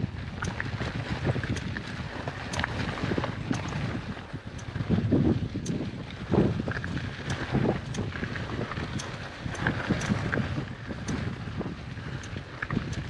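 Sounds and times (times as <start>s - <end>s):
wind buffeting microphone: 0.0s - 13.0s
bike clicks and rattles: 8.9s - 10.4s.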